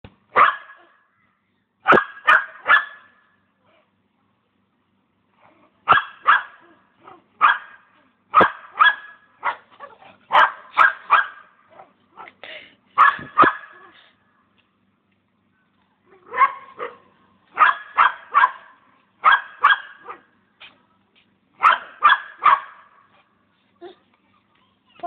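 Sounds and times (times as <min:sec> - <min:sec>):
dog barking: 0:00.3 - 0:01.0, 0:01.8 - 0:03.1, 0:05.9 - 0:12.4, 0:13.0 - 0:14.0, 0:16.2 - 0:20.3, 0:21.6 - 0:23.1.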